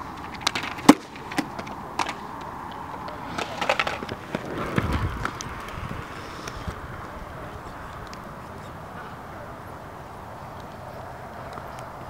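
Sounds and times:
skates clacking on concrete: 0.0s - 9.6s
wheels rolling over concrete: 0.0s - 12.0s.

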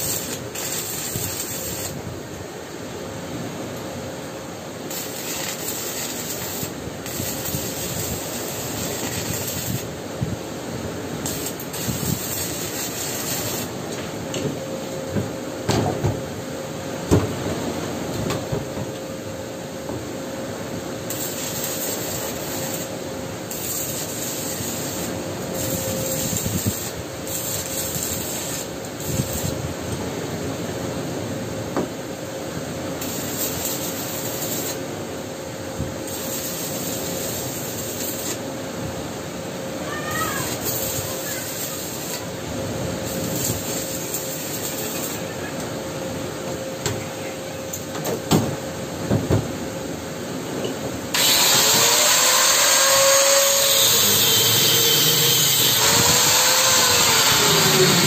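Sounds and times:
welding arc crackling: 0.0s - 2.1s, 4.8s - 10.0s, 11.1s - 13.8s, 21.0s - 29.8s, 32.9s - 34.9s, 36.0s - 38.4s, 39.9s - 42.3s, 43.0s - 45.3s, 51.1s - 58.0s
steady hum: 0.0s - 52.0s.

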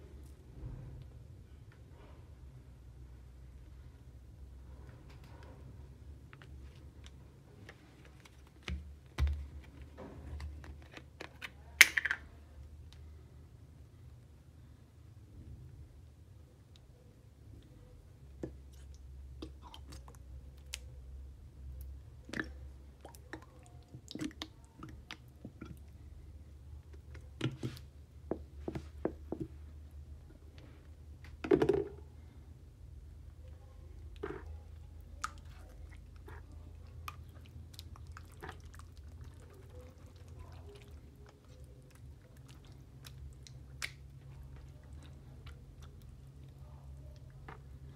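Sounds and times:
low steady hum: 0.0s - 47.9s
plastic cap snapping off: 11.8s - 12.2s.

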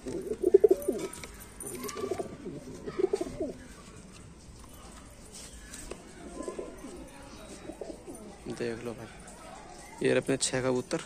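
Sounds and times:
pigeons cooing: 0.0s - 3.6s.

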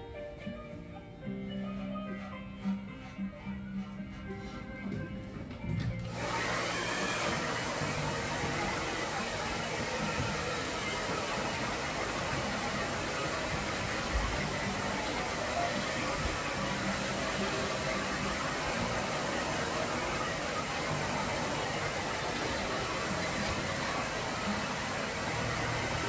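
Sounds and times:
background music: 0.0s - 26.0s
hair dryer running: 5.7s - 26.0s.

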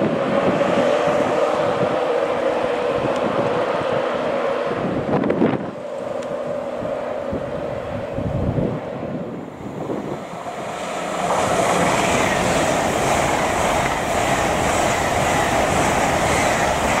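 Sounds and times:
train wheels rushing on rails: 0.0s - 17.0s.

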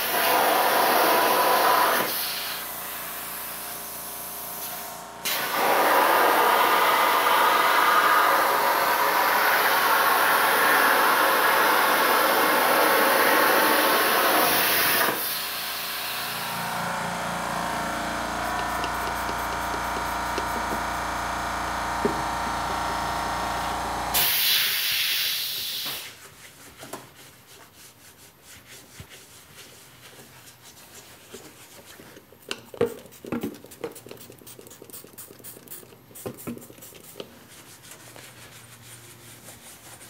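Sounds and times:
plasma cutter arc hissing: 0.0s - 3.6s, 4.3s - 16.7s, 24.2s - 26.1s.

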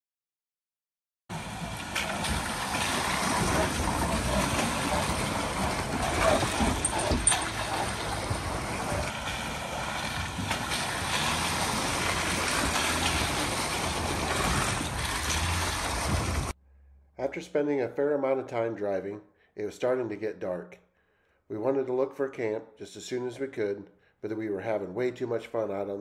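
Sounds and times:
tyres splashing through water: 1.3s - 16.6s
vehicle engines at low speed: 1.3s - 16.6s.

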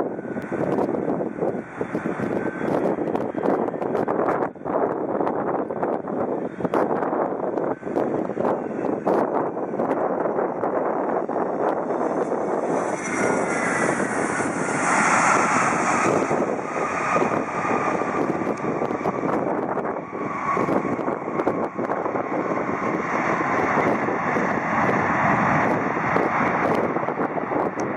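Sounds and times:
jet engine noise: 0.0s - 27.9s.

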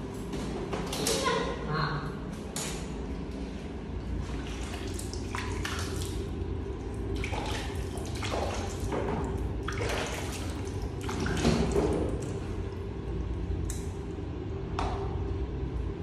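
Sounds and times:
water splashing: 4.1s - 14.0s.

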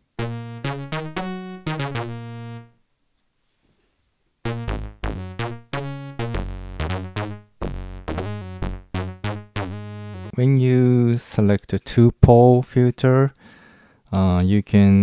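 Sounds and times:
synthesizer short bright notes: 0.0s - 2.7s, 4.5s - 10.4s.

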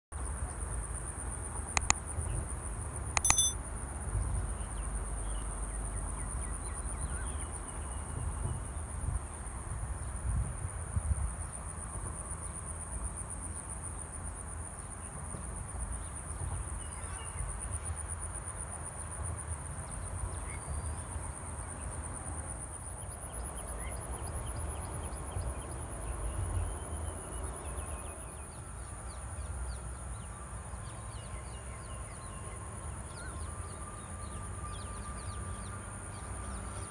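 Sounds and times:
brief click: 3.2s - 3.6s
faint bird chirps: 3.2s - 3.6s
insects droning: 11.2s - 36.9s.

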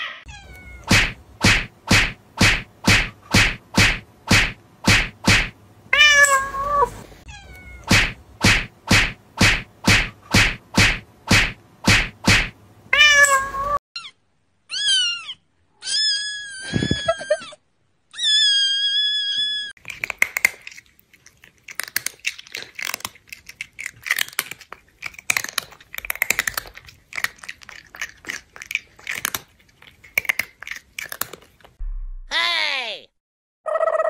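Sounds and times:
cat meowing: 6.0s - 7.9s, 12.9s - 14.1s
crackly crunching: 19.8s - 31.8s.

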